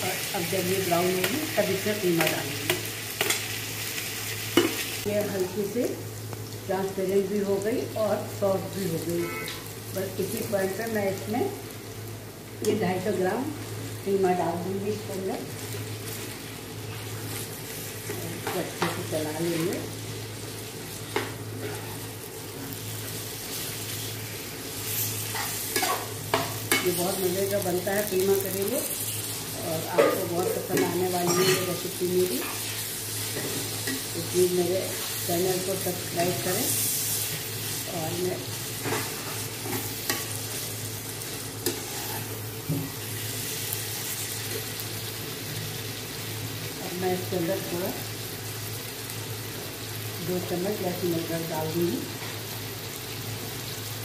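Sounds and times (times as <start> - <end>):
meat and onions sizzling in oil: 0.0 - 54.0
metal ladle clinking on pan: 30.8 - 31.7.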